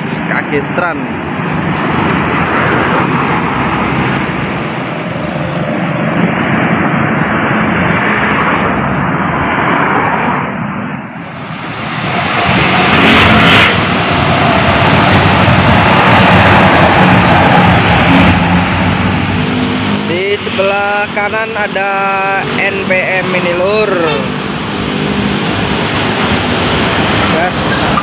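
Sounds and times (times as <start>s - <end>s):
buses driving past: 0.0s - 28.0s.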